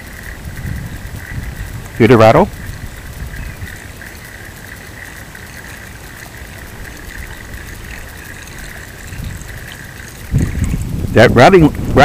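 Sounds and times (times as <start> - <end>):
fishing lure rattling: 0.0 - 12.0
low rumble: 6.6 - 12.0.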